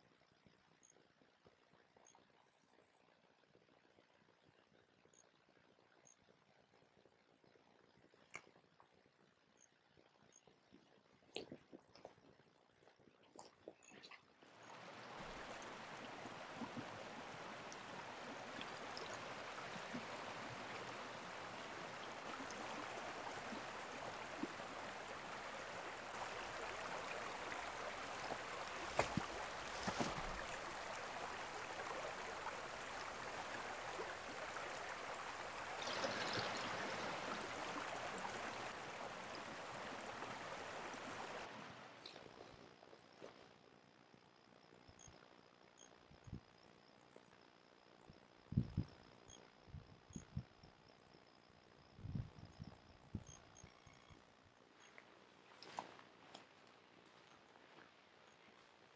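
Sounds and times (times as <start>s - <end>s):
mountain creek running: 11.1s - 43.4s.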